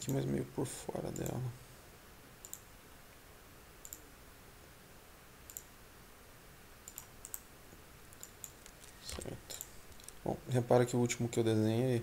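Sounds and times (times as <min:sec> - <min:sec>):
low steady hiss: 0:00.0 - 0:12.0.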